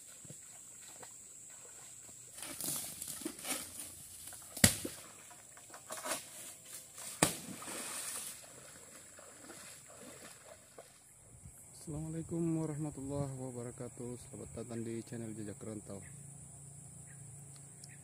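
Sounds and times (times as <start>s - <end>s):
water sloshing around wading person: 0.0s - 11.2s.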